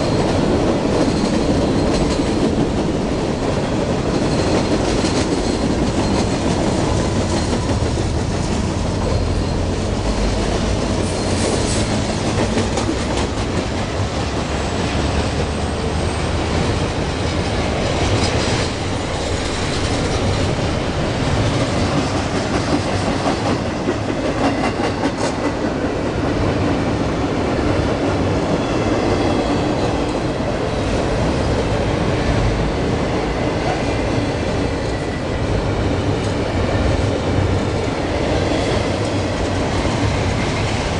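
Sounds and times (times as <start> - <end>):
clickety-clack over rail joints: 0.0 - 40.9
train wheels rumbling on rails: 0.0 - 40.9
faint high wheel squeal: 9.0 - 9.8.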